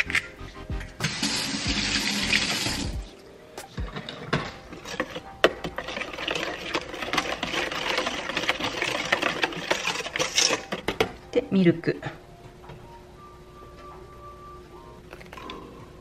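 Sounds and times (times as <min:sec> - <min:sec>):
whisk beating batter in metal bowl: 0:04.8 - 0:11.0.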